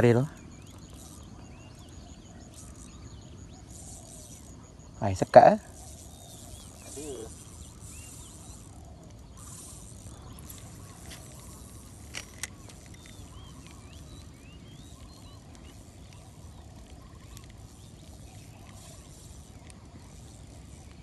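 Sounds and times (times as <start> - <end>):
faint bird chirps: 0.0 - 21.0
sharp clicks: 7.8 - 14.3.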